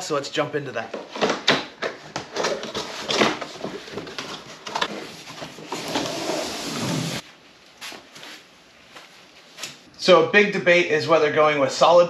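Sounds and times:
panel scraping out of box: 0:04.6 - 0:07.2.

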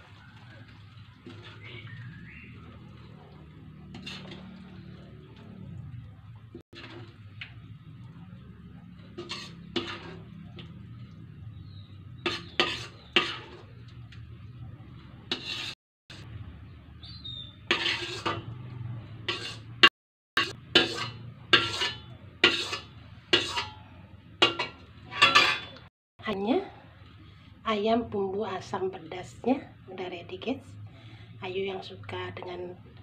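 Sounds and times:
metal spatula scraping a wok: 0:01.2 - 0:06.0, 0:06.7 - 0:14.1, 0:15.1 - 0:16.2, 0:17.4 - 0:25.9.

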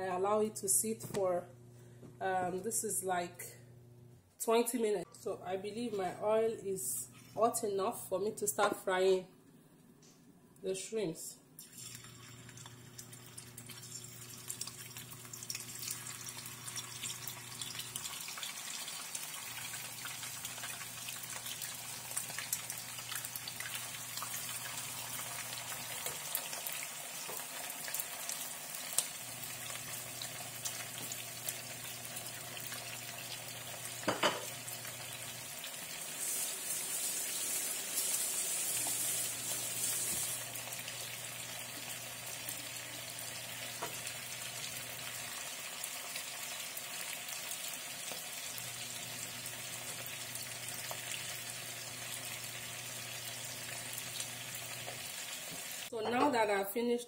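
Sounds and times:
shrimp sizzling in hot oil: 0:11.6 - 0:55.9.

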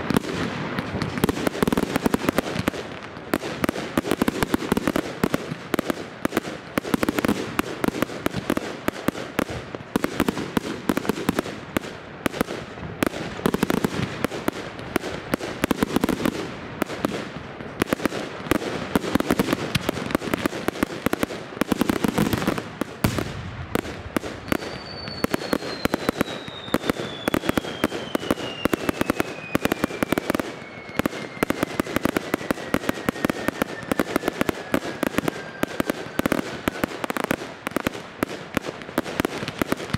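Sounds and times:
fireworks bangs and crackles: 0:00.0 - 0:39.9
descending firework whistle: 0:22.4 - 0:37.6.

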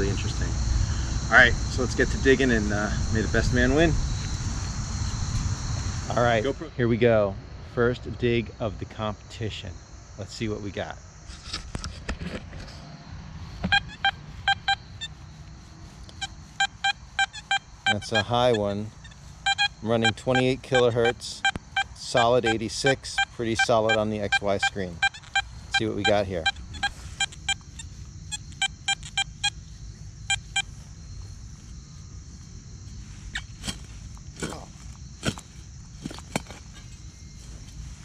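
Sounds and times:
metal detector high-tone beeps: 0:13.6 - 0:14.9, 0:16.2 - 0:18.8, 0:19.4 - 0:29.6, 0:30.3 - 0:30.8.

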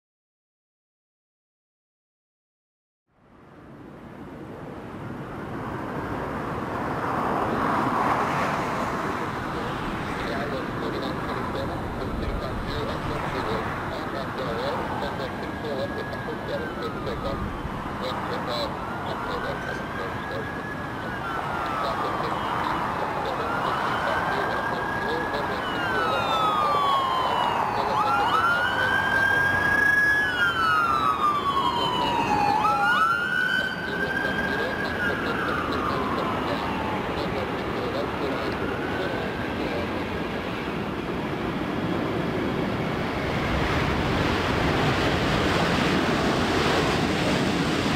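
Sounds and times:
distant jet engines: 0:03.6 - 0:47.9
emergency vehicle siren wailing: 0:05.7 - 0:47.9
jet airliner rushing: 0:30.6 - 0:47.9.

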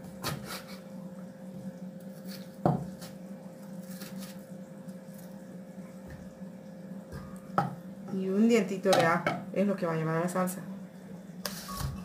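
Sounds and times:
steady low hum: 0:00.0 - 0:12.0
knife cutting onion on board: 0:00.1 - 0:00.8.

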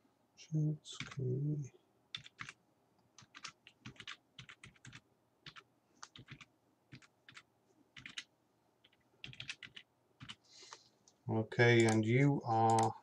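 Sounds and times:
keyboard typing clicks: 0:08.0 - 0:10.4, 0:11.8 - 0:13.0.

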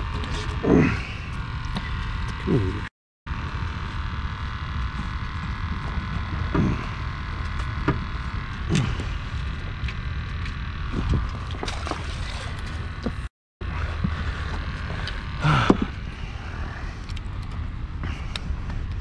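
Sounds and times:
mechanical hum: 0:00.0 - 0:19.0.

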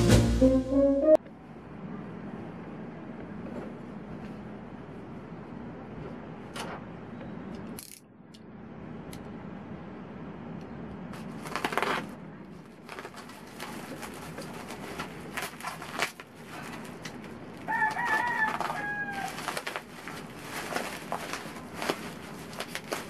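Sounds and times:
plastic wrap crinkling and tearing: 0:11.2 - 0:23.0
rooster crowing: 0:17.6 - 0:19.6.

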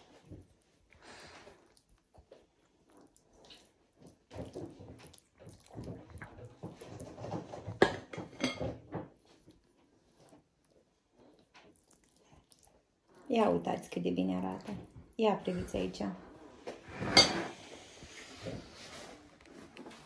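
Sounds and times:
utensil clinking against dish: 0:07.6 - 0:08.9
soft scrapes and squelches: 0:14.4 - 0:20.0.

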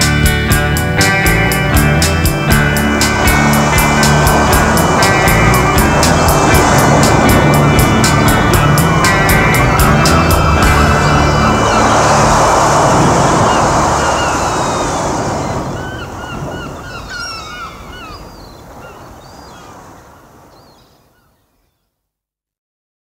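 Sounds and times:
music: 0:00.0 - 0:14.6
gulls crying: 0:00.0 - 0:21.3
surf washing onto beach: 0:00.0 - 0:21.3.

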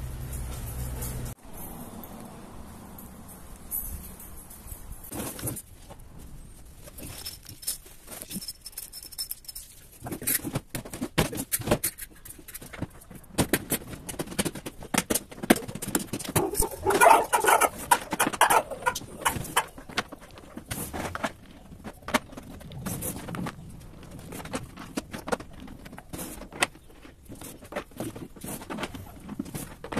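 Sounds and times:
plastic crates clicking and rattling: 0:09.8 - 0:29.9.

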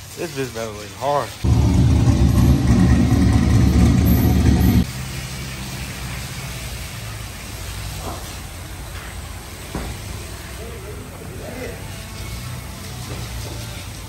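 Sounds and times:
car engine idling: 0:01.4 - 0:04.9
low hum: 0:01.4 - 0:04.9.

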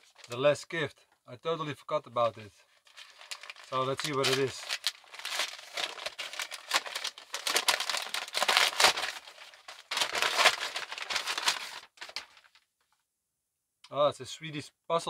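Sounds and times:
wrapping paper crinkling and tearing: 0:00.0 - 0:00.4, 0:02.8 - 0:12.6.

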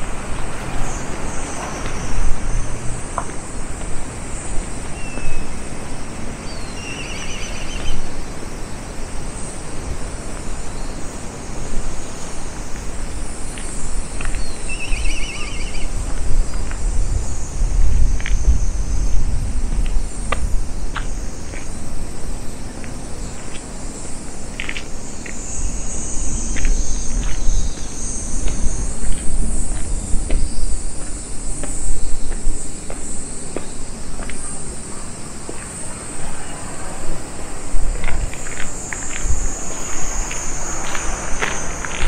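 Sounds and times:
insects chirping: 0:00.0 - 0:42.0.

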